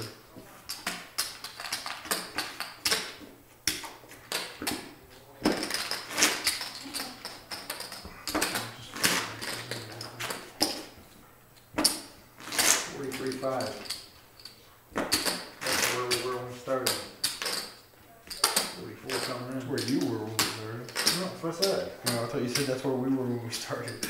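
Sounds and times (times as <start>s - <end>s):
poker chips clicking: 5.6s - 10.1s.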